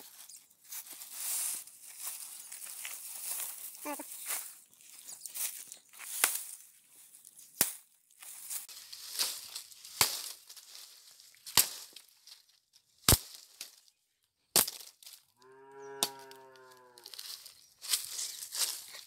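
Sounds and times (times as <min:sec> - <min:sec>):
sickle chopping palm fibre: 0:09.9 - 0:10.4, 0:11.5 - 0:12.0.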